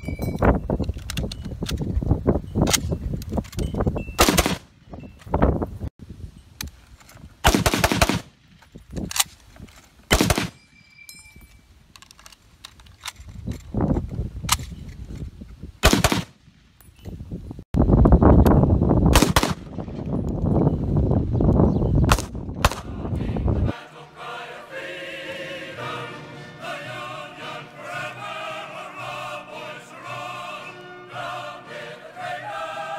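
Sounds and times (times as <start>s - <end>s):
rifle shots cracking: 4.2s - 4.7s, 7.4s - 8.3s, 10.1s - 10.6s, 15.8s - 16.4s, 19.2s - 19.7s
metallic ping of ejected clip: 10.5s - 11.6s.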